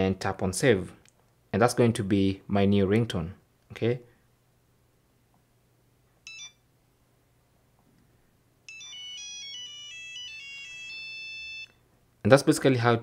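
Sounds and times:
monophonic ringtone melody: 0:06.2 - 0:06.6, 0:08.7 - 0:11.8.

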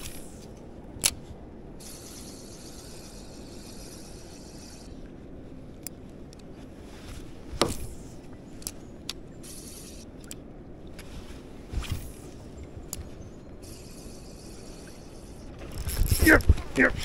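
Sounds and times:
fishing reel whirring: 0:01.8 - 0:05.0, 0:09.4 - 0:10.4, 0:12.9 - 0:16.4
light clicks: 0:08.6 - 0:09.2.

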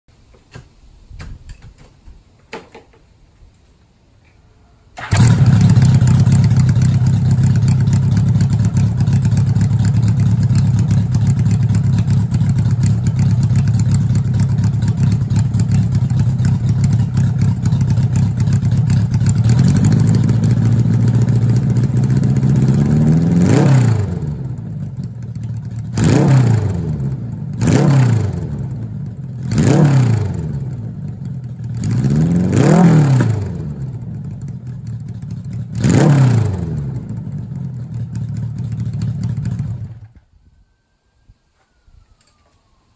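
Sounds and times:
loud motorcycle engine revving: 0:05.0 - 0:24.8, 0:25.8 - 0:31.1, 0:31.7 - 0:34.1, 0:35.6 - 0:40.0.

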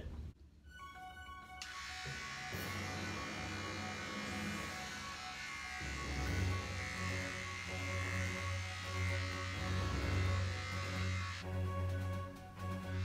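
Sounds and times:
electric hair clippers buzzing: 0:01.6 - 0:11.4, 0:12.7 - 0:13.0.

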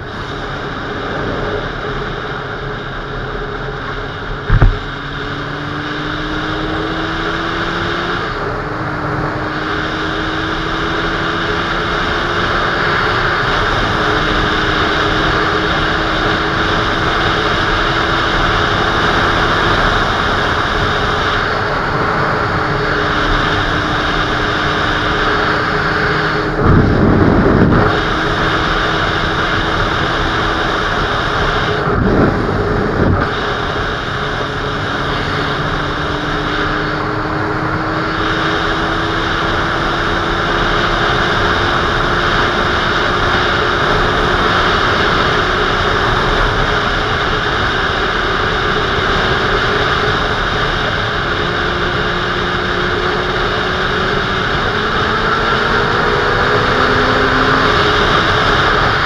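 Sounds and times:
motorcycle engine: 0:00.0 - 0:59.0
wind rushing over camera: 0:00.0 - 0:59.0
brief knocks: 0:04.5 - 0:04.9.

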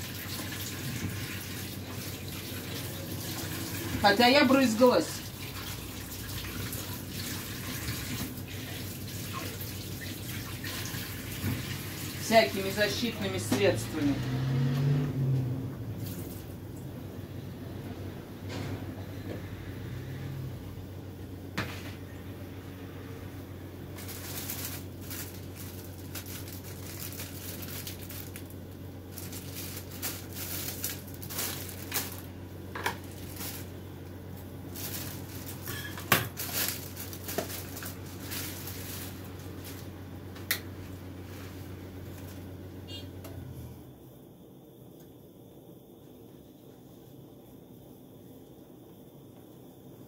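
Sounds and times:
rustling of things handled: 0:23.9 - 0:42.5.

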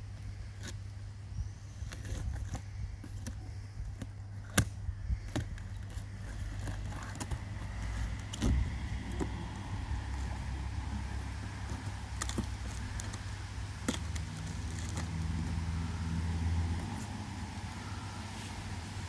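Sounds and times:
steady low rumble: 0:00.0 - 0:19.0
cardboard scraping and rustling: 0:01.7 - 0:15.6
blade slitting packing tape: 0:13.8 - 0:15.3.

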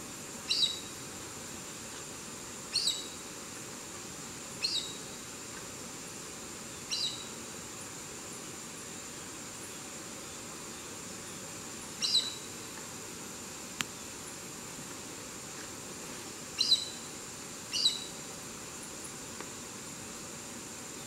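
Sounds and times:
high insect hum: 0:00.0 - 0:21.0
bird high sharp calls: 0:00.5 - 0:00.9, 0:02.7 - 0:03.2, 0:04.6 - 0:05.0, 0:06.9 - 0:07.3, 0:12.0 - 0:12.5, 0:16.6 - 0:17.0, 0:17.7 - 0:18.1.

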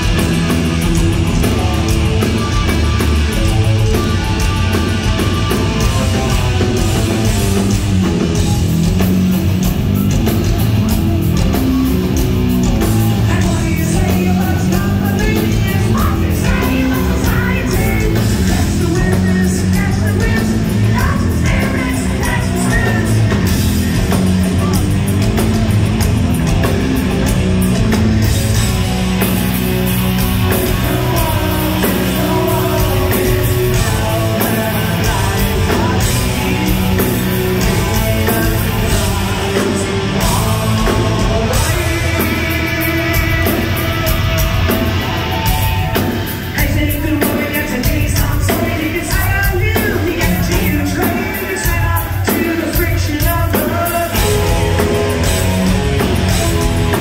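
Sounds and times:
bass guitar: 0:00.0 - 0:57.0
drums: 0:00.0 - 0:57.0
electric guitars: 0:00.0 - 0:57.0
man singing: 0:12.6 - 0:24.8, 0:30.2 - 0:57.0.

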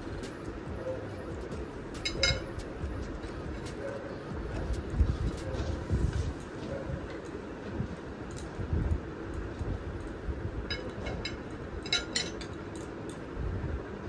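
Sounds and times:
low steady hum: 0:00.0 - 0:14.0
metal spoon clinking on glass plate: 0:02.0 - 0:02.6, 0:10.7 - 0:12.5.

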